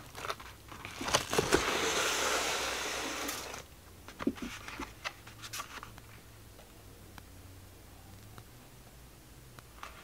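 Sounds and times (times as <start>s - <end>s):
bubble wrap rustling: 0.0s - 3.6s.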